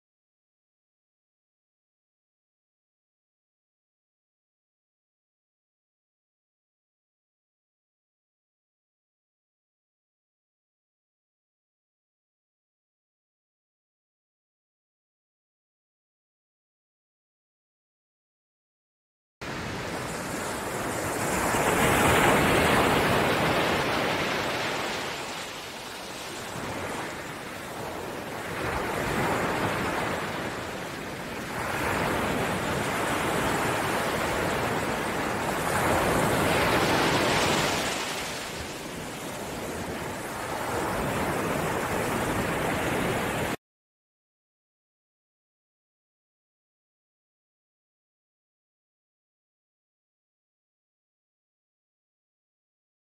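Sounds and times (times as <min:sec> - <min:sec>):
waves breaking over rocks: 0:20.2 - 0:43.6.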